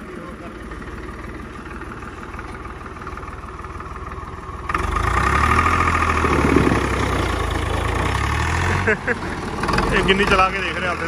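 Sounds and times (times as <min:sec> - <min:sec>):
tractor diesel engine revving: 0:00.0 - 0:11.0.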